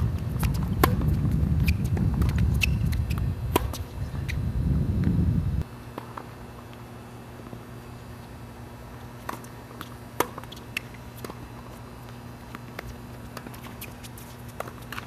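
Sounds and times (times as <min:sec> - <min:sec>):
steady low hum: 0:00.0 - 0:15.0
tennis ball bouncing: 0:00.4 - 0:01.2, 0:02.2 - 0:03.8, 0:09.2 - 0:11.4.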